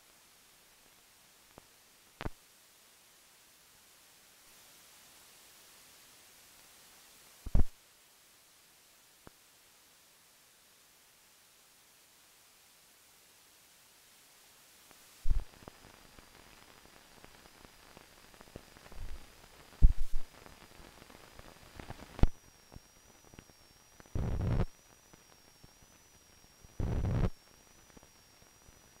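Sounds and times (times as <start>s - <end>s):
faint high whine: 0.0s - 29.0s
film static crackle and pops: 0.0s - 29.0s
short low thumps: 19.8s - 20.2s.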